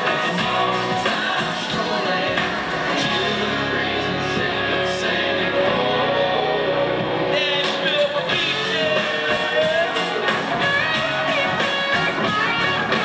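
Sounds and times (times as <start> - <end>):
live country band playing: 0.0 - 13.0
person singing: 0.0 - 13.0.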